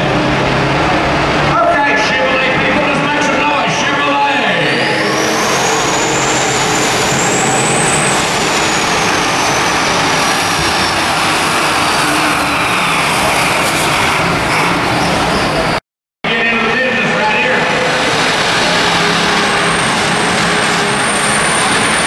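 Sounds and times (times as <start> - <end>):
diesel engine at full throttle: 0.0 - 22.0
turbocharger whistle: 4.3 - 15.8, 18.0 - 22.0.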